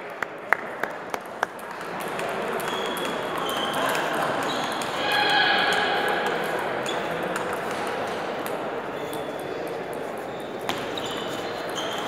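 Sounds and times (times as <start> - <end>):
echoing hall din: 1.7 - 8.9.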